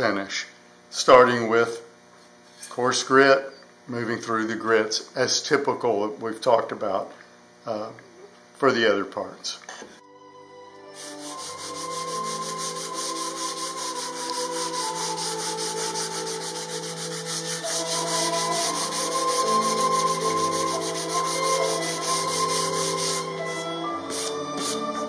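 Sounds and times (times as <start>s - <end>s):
background music with held notes: 10.0s - 25.0s
sandpaper rasping on wood: 11.0s - 25.0s.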